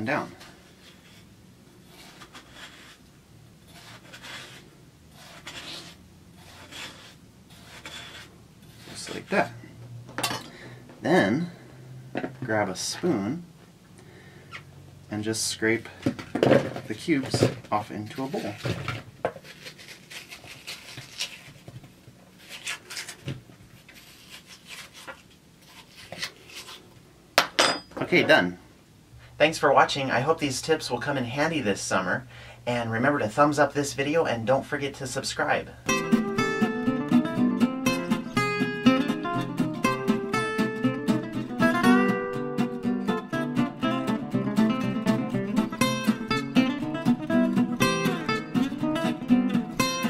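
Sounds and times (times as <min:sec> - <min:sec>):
spoon scraping watermelon: 0:03.6 - 0:09.5, 0:19.4 - 0:21.6, 0:23.8 - 0:26.8.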